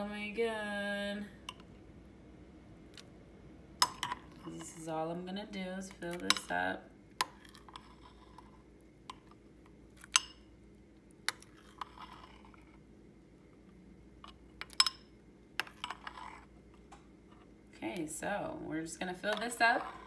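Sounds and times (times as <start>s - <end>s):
batter being scraped: 7.2s - 8.6s, 11.3s - 12.8s, 15.6s - 16.5s.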